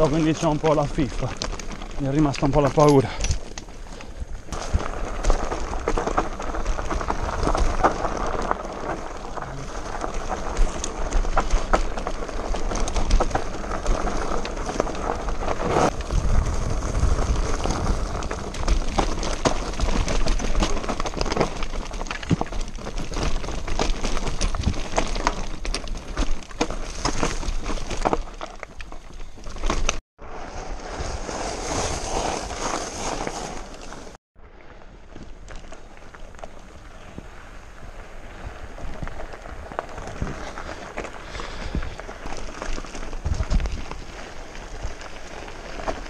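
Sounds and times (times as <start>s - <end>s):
bike tyres rattling on stones: 0.0s - 46.0s
bike knocks and clatters: 17.4s - 30.0s.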